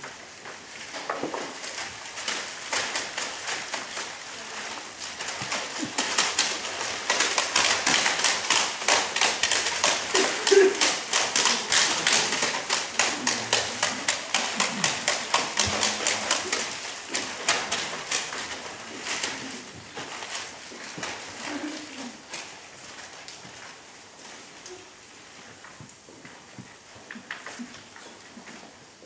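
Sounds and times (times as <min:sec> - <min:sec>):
rapid tapping: 0:01.2 - 0:21.4.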